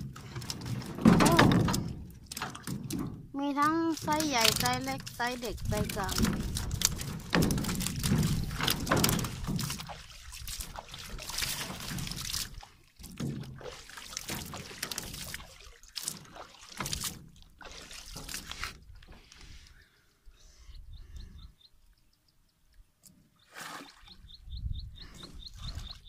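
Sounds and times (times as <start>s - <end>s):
water splashing: 0.0s - 19.3s
water pouring off fish trap: 3.9s - 12.7s.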